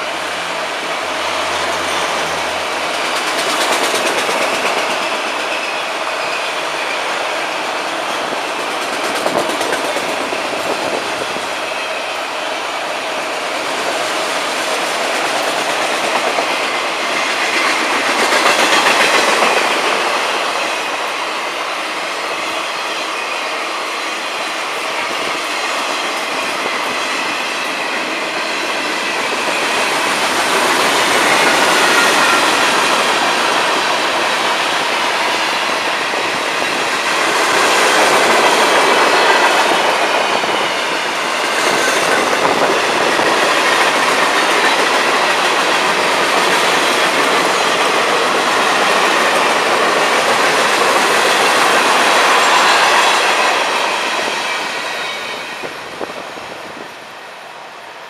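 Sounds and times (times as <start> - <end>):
train wheels rumbling on rails: 0.0 - 58.0
high wheel squeal: 54.2 - 55.8.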